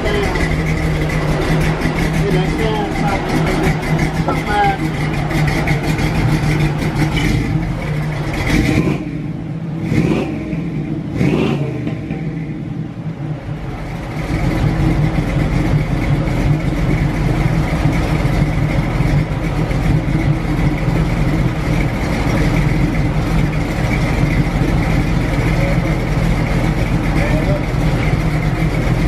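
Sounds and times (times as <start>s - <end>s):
car engine exhaust idling: 0.0s - 29.0s.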